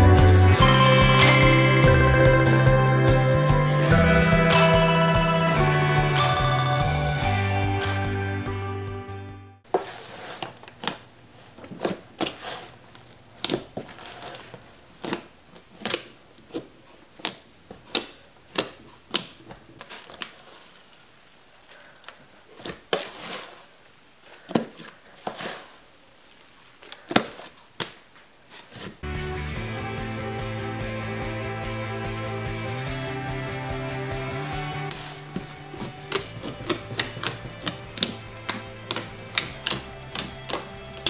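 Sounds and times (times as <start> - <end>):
slime popping and clicking: 36.0 - 41.0.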